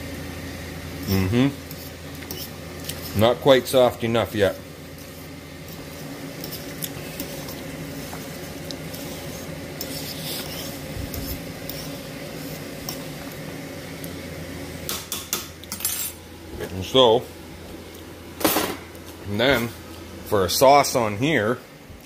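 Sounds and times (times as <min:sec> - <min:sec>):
boiling water: 0:00.0 - 0:15.7
low hum and hiss: 0:00.0 - 0:22.0
fork scraping metal pot: 0:01.7 - 0:03.2, 0:06.4 - 0:13.0.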